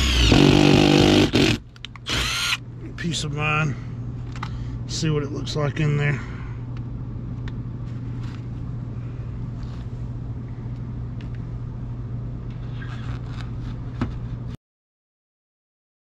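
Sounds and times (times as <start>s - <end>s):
air handler humming: 0.0s - 12.7s.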